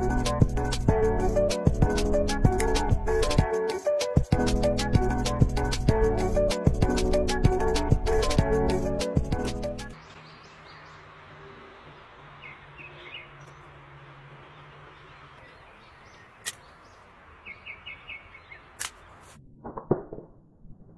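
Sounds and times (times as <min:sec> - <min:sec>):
steady outdoor hiss: 0:00.0 - 0:19.4
birds chirping: 0:09.6 - 0:19.3
slingshot snaps: 0:16.4 - 0:16.7, 0:18.8 - 0:19.0.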